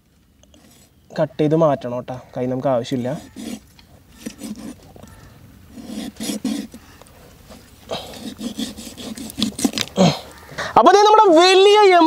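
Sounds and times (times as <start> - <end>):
knife cutting and scraping: 0.4 - 1.0, 2.9 - 6.8, 7.5 - 10.0.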